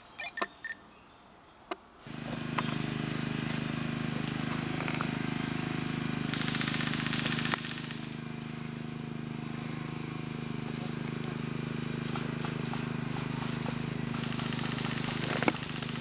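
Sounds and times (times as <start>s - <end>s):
low mechanical drone: 2.1s - 16.0s
rapid rattling burst: 5.2s - 10.6s, 11.4s - 16.0s.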